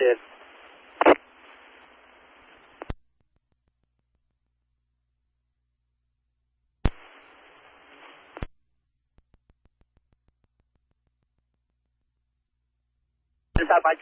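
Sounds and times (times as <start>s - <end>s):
radio clicks: 0.0s - 1.6s, 2.4s - 3.8s, 6.9s - 11.8s
radio static hiss: 0.0s - 3.0s, 6.9s - 8.6s, 13.6s - 14.0s
rapid faint clicks: 9.1s - 11.8s.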